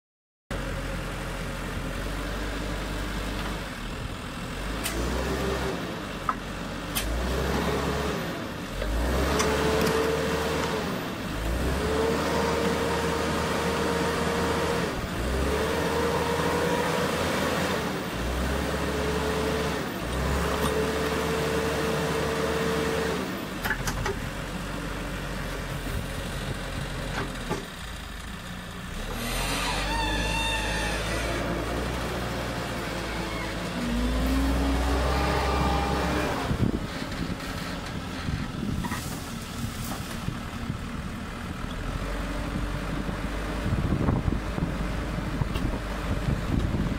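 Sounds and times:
loader engine running: 0:00.5 - 0:46.9
hydraulic whine: 0:29.0 - 0:32.2.

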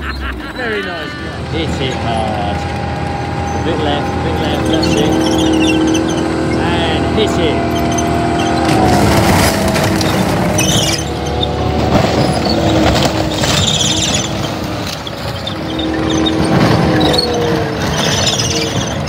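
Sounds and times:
large vehicle engine running: 0:00.0 - 0:19.0.

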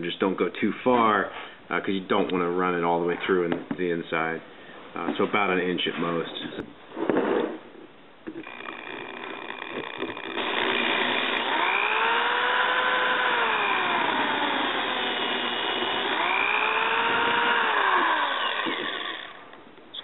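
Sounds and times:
electric drill boring into plastic: 0:08.3 - 0:19.6.

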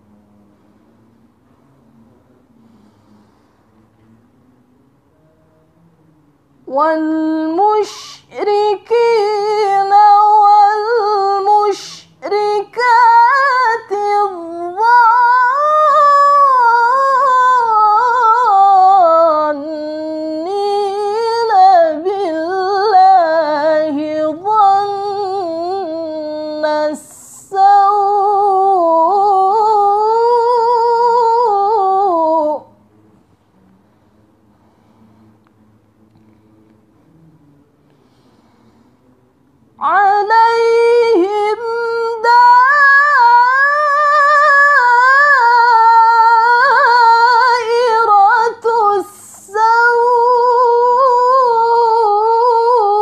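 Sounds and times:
woman reciting melodically: 0:06.6 - 0:32.8, 0:39.8 - 0:53.0.

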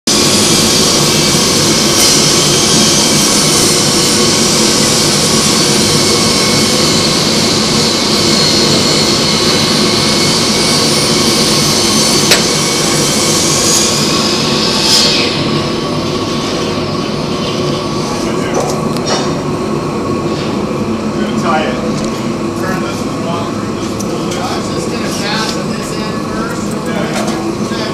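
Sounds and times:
steam hissing: 0:00.1 - 0:18.2.

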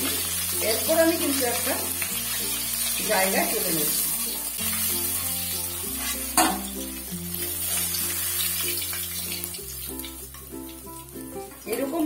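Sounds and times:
fish sizzling in hot oil: 0:00.0 - 0:12.0
sharp metal knock: 0:06.4 - 0:06.7.

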